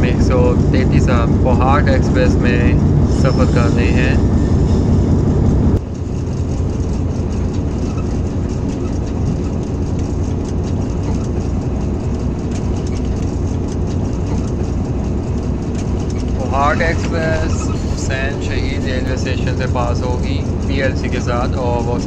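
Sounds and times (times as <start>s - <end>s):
locomotive engine and wheel drone: 0.0s - 22.0s
rattling clicks: 5.8s - 22.0s.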